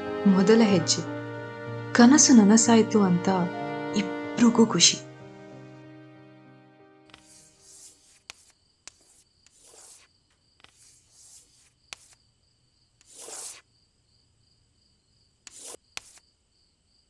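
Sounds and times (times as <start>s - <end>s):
chalk scratching on slate: 7.1s - 12.2s, 13.0s - 13.6s, 15.4s - 16.2s
faint crickets chirping: 8.2s - 17.0s.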